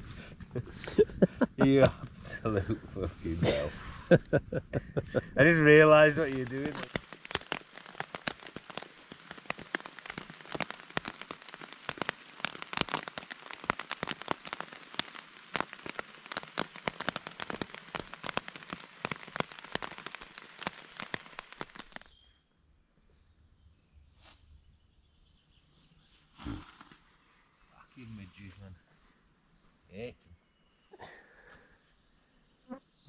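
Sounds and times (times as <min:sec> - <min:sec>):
rain pattering on tent fabric: 0:00.0 - 0:22.2.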